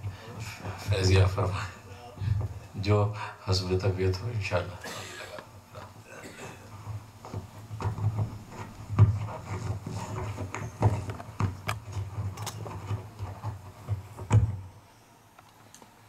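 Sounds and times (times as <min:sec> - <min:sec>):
microphone handling thumps and clicks: 0:06.7 - 0:14.7.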